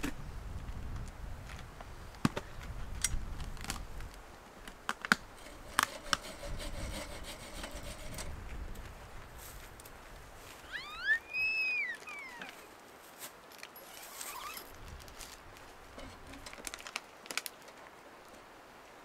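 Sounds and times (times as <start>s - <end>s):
wood and stones scraping: 5.1s - 9.6s, 13.6s - 17.0s.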